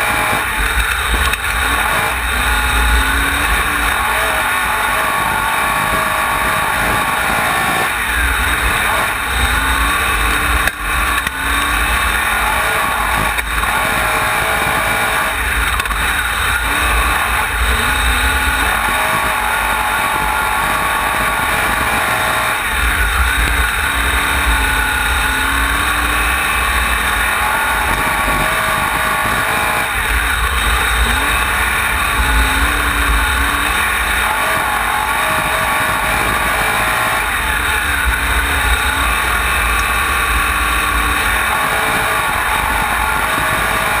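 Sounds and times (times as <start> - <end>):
race car engine revving: 0.0 - 44.0.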